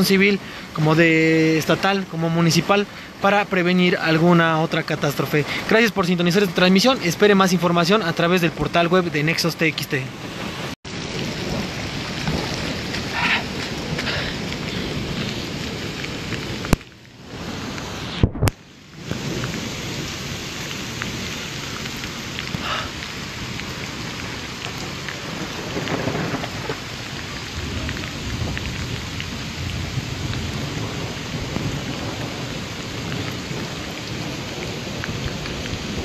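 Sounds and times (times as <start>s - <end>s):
heavy rain on street: 0.0s - 36.0s.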